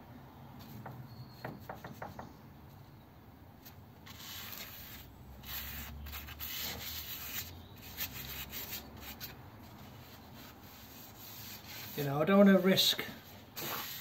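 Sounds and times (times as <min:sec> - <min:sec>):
gloved hand rubbing metal: 0:04.1 - 0:14.0.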